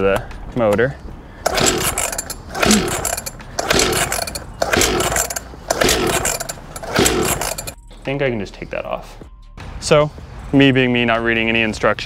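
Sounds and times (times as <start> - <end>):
engine turning over with whirring rattle: 1.4 - 7.8.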